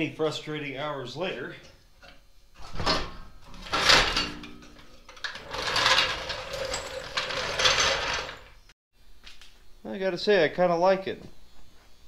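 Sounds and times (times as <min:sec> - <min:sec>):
floor jack rattling: 0:02.7 - 0:08.6.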